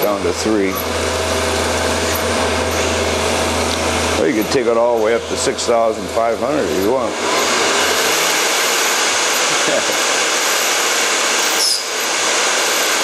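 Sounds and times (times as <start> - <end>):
milling machine cutting metal: 0.0 - 13.0
short falling whistle: 11.4 - 11.9.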